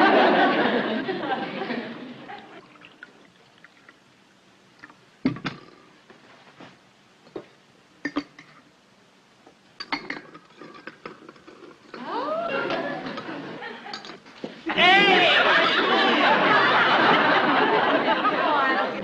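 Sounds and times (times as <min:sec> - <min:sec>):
metal coffee pot knocking: 0:09.8 - 0:11.7.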